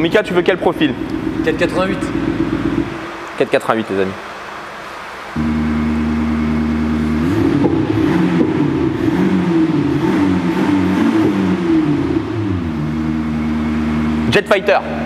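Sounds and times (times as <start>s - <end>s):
synthetic engine sound revving: 5.4s - 15.0s.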